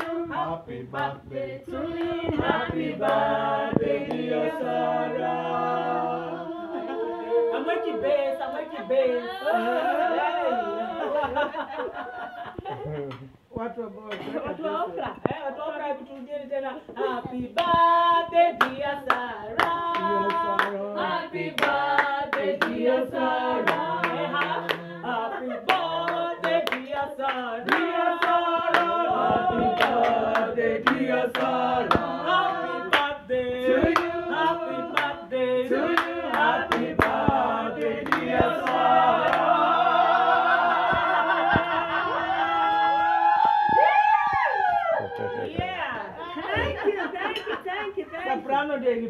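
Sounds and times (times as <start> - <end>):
people clapping along: 0.0 - 6.1, 17.4 - 45.9
group of people singing: 0.0 - 13.0, 16.5 - 43.7.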